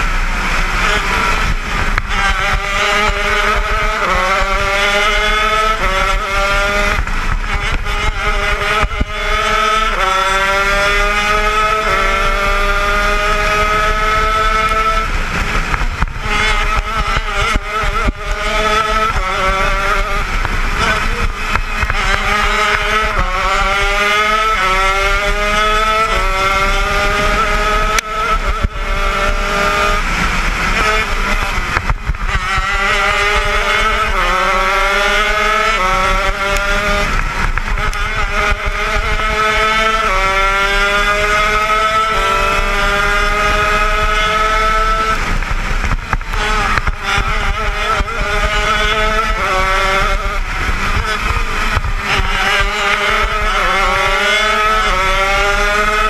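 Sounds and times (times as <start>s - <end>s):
kart engine revving and shifting: 0.0s - 56.0s.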